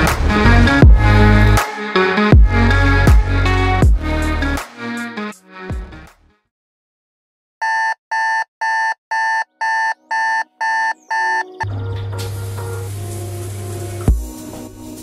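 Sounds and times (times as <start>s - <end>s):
smartphone alarm beeps: 7.6s - 11.6s.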